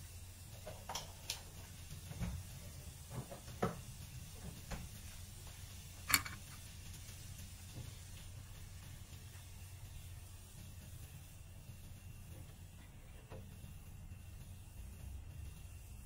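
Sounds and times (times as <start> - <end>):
low steady hum: 5.2 - 10.3.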